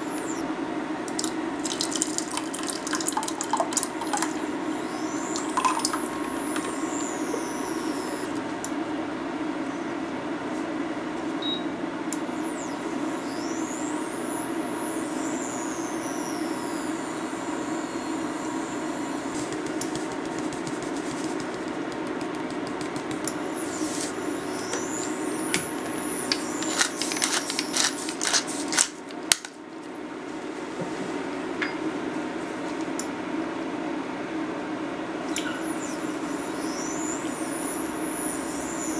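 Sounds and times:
pepper grinder crackling clicks: 26.3s - 29.6s.

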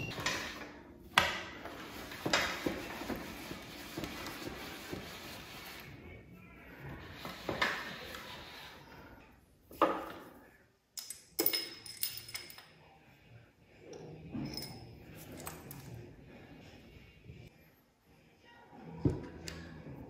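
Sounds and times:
steel tools clinking on workbench: 11.0s - 12.7s.

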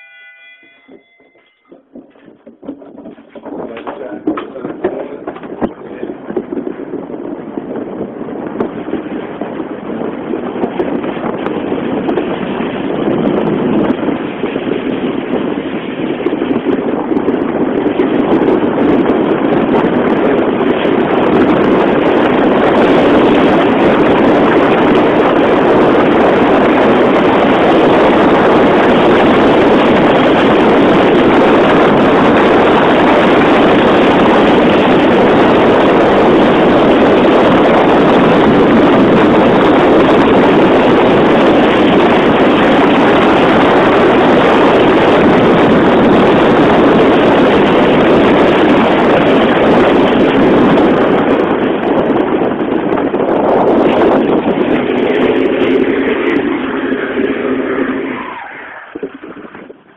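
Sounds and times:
sled runners on ice: 0.0s - 9.5s
wind rushing over microphone: 0.0s - 59.9s.

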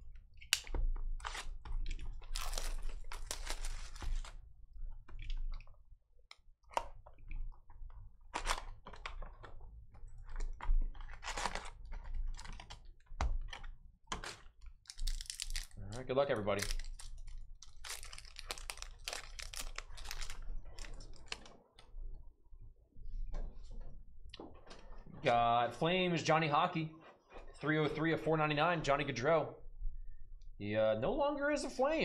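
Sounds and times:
foil packs crinkling and clicking: 0.5s - 4.4s, 8.3s - 21.8s
cardboard and wrapping rustling: 1.2s - 4.4s, 10.2s - 12.8s, 14.1s - 21.6s.

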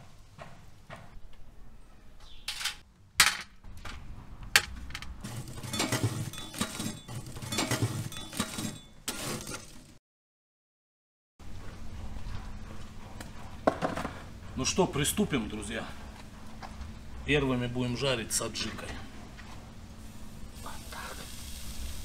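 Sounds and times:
poker stirring charcoal embers: 5.2s - 9.8s, 20.0s - 22.0s.

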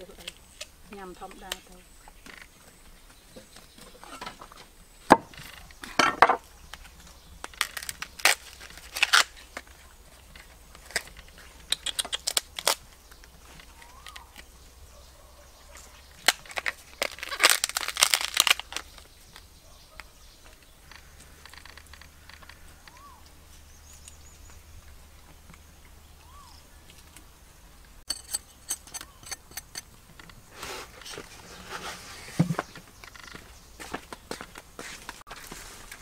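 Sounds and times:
crunching and cracking: 5.2s - 14.5s, 15.7s - 25.7s.

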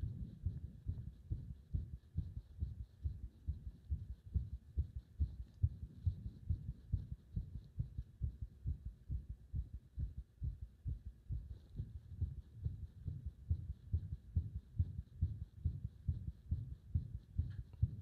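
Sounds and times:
heart beating: 0.0s - 18.0s.

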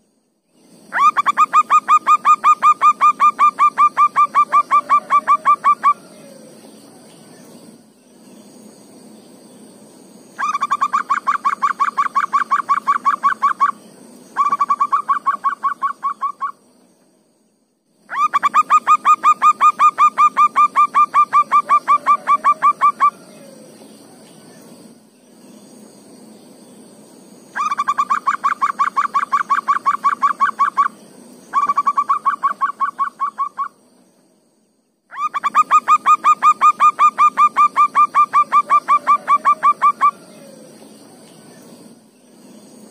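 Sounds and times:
faint high-pitched hum: 0.0s - 42.9s
dove calling in rapid notes: 0.9s - 6.5s, 10.4s - 13.8s, 14.4s - 16.6s, 18.1s - 23.7s, 27.6s - 33.8s, 35.1s - 40.8s.

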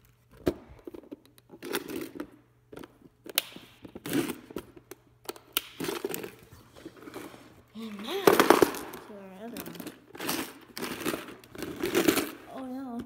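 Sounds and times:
plastic rustling: 5.8s - 13.0s.

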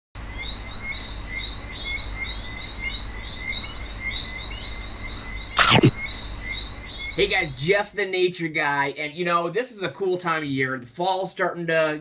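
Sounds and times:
steady high whine: 4.3s - 7.8s
small animal chirping: 5.5s - 6.2s.

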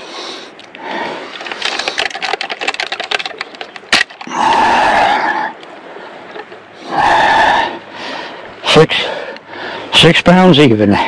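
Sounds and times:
metal gripper and scale hook rattling: 1.3s - 4.3s.

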